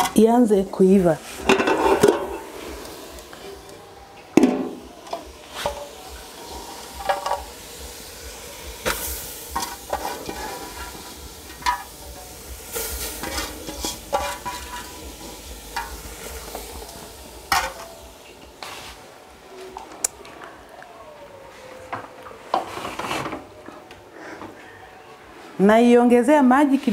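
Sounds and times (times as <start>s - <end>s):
fish frying in pot: 4.8s - 19.4s.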